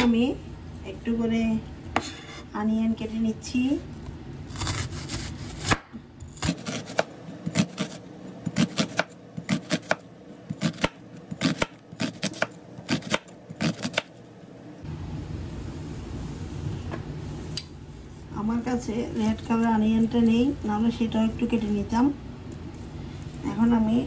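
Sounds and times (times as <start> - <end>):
knife chopping on cutting board: 4.6 - 14.1.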